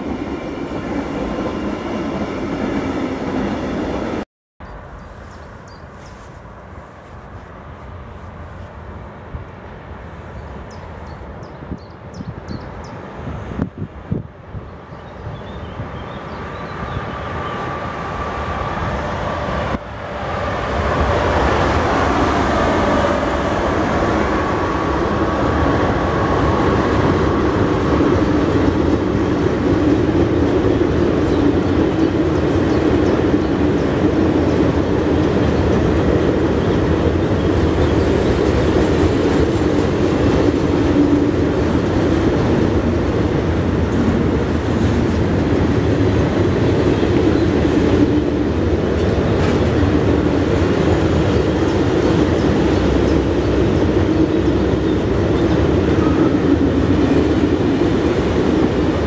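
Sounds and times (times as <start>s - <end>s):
wagons rumbling over rails: 12.8s - 59.0s.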